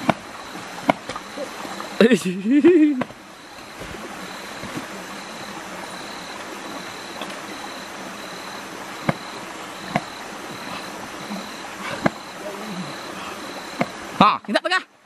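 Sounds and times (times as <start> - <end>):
stream rushing: 0.0 - 15.0
high pulsing insect note: 2.7 - 14.2.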